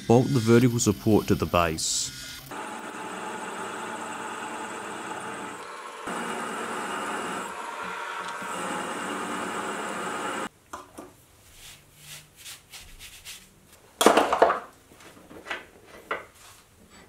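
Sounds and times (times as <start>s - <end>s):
milling machine drilling metal: 2.1s - 10.5s.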